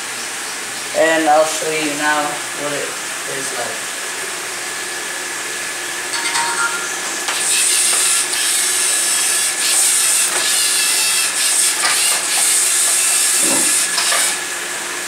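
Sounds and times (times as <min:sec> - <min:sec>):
robot motors whirring: 0:07.4 - 0:14.4.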